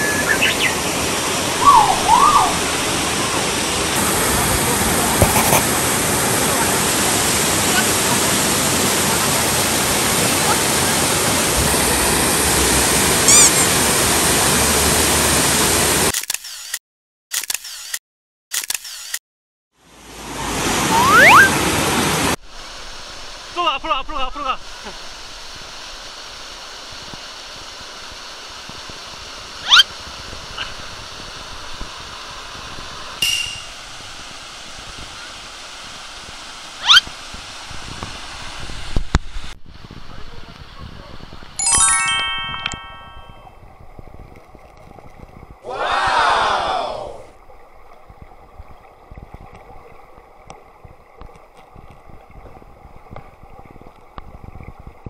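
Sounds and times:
waterfall rushing: 0.0s - 16.1s, 19.9s - 39.0s
water rushing down rock slide: 0.1s - 16.1s
camera shutter clicks: 16.1s - 19.2s.

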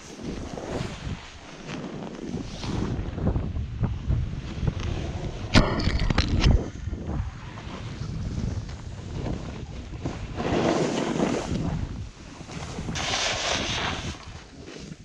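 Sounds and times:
snowboard scraping over snow: 0.0s - 5.5s, 6.5s - 15.0s
wind over microphone: 0.0s - 15.0s.

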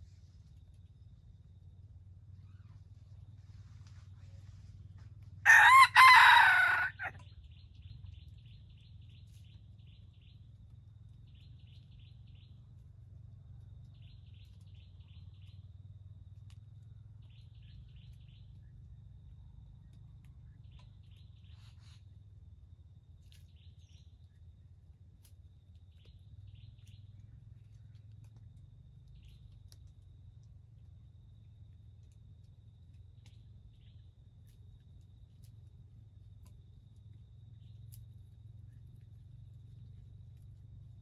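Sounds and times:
rooster crowing: 5.4s - 7.2s.

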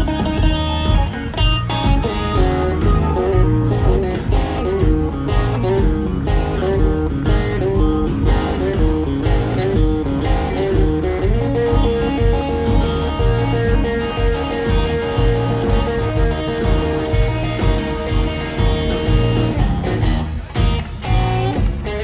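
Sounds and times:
blues band playing: 0.0s - 22.0s
electric guitar lead: 0.0s - 22.0s.

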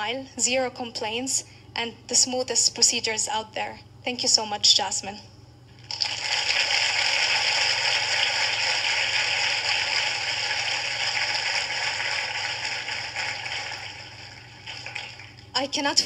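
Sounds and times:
large audience applauding: 5.9s - 15.5s.

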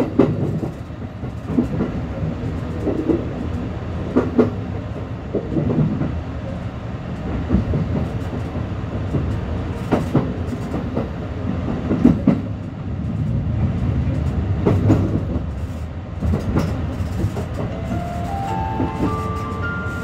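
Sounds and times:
train running with low rumble: 0.0s - 20.0s
wheels clicking over rail joints: 14.2s - 17.7s
stepped rising tones: 17.7s - 20.0s.

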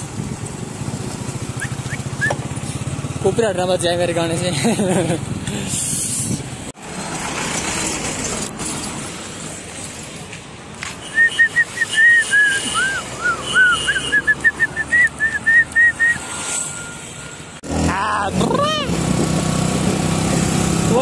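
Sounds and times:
road traffic noise: 0.0s - 21.0s
short whistled notes: 1.6s - 2.4s, 11.0s - 17.3s.

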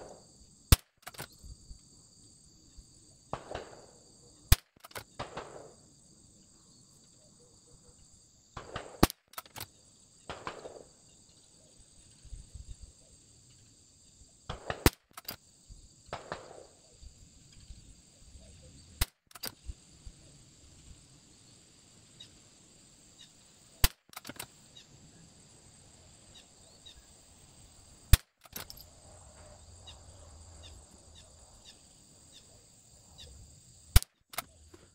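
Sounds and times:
rifle handling sounds: 0.8s - 1.4s, 9.0s - 9.7s, 14.9s - 15.4s, 23.8s - 24.6s, 28.2s - 29.5s, 34.0s - 34.9s
rifle shots: 3.3s - 5.8s, 8.6s - 9.6s, 10.3s - 10.9s, 14.5s - 15.2s, 16.1s - 16.8s.

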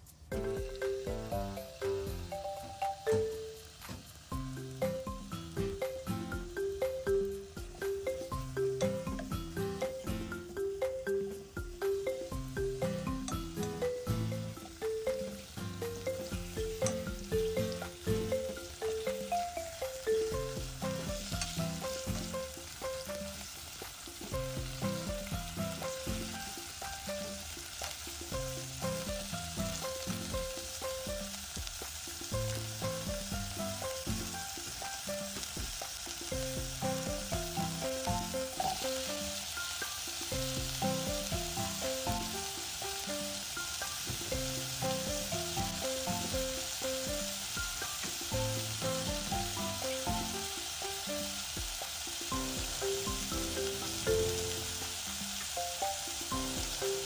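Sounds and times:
chicken sizzling in oil: 0.0s - 57.0s
light background music: 0.0s - 57.0s.

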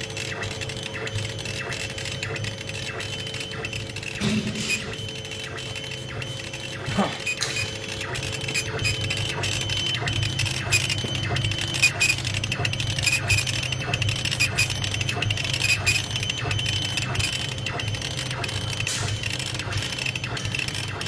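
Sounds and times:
machine hum: 0.0s - 21.0s.

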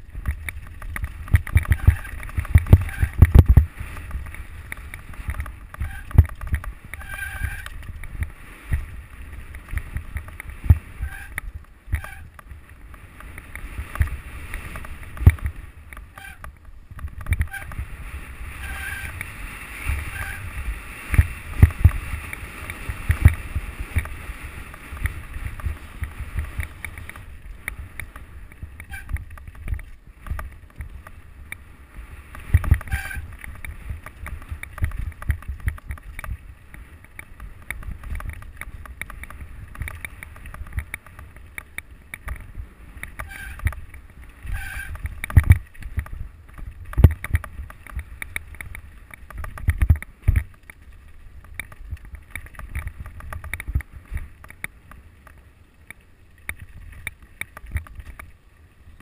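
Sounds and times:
bike knocks and rattles: 0.0s - 18.0s, 18.6s - 58.4s
wind on microphone: 0.0s - 54.6s
bike tyres rumbling on stones: 0.0s - 59.0s.

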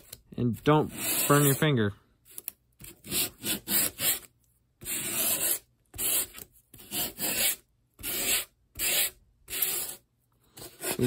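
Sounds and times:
sandpaper scratching foam: 0.7s - 1.8s, 2.8s - 10.0s.

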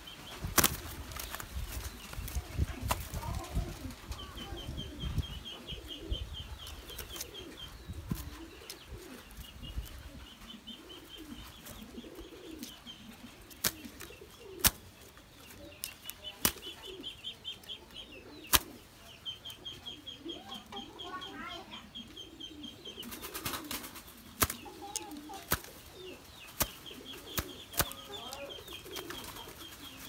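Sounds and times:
doves flapping wings: 0.3s - 5.1s, 11.2s - 15.2s, 15.8s - 17.0s, 23.0s - 30.0s.

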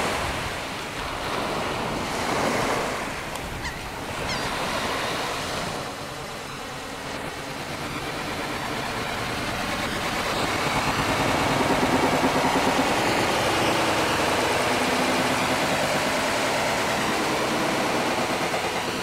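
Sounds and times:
engine running with pulsing hum: 0.0s - 19.0s.

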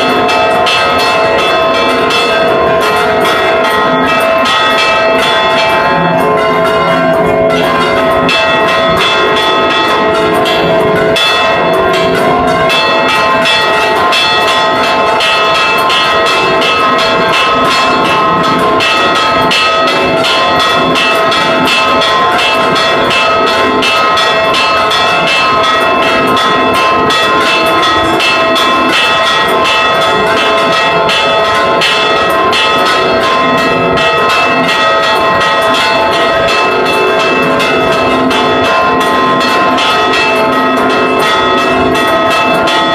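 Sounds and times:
church bells ringing rapidly: 0.0s - 42.9s.

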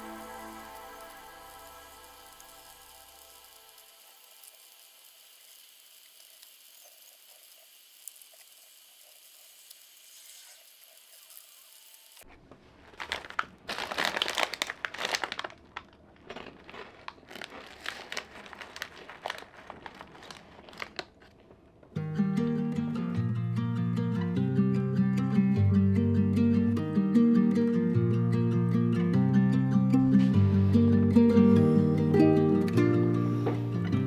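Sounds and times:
faint steady hiss: 0.0s - 12.3s
plastic snack bag crinkling: 12.2s - 21.9s.

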